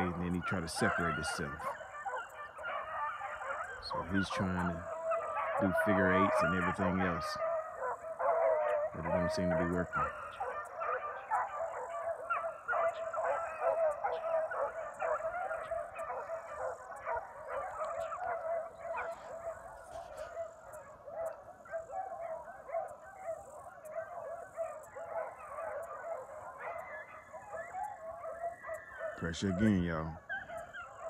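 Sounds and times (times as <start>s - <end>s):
dogs baying: 0.0s - 31.0s.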